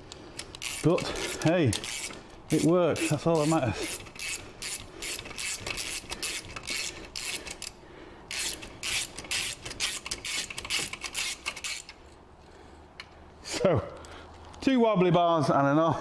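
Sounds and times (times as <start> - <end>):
socket ratchet clicking: 0.1 - 12.0.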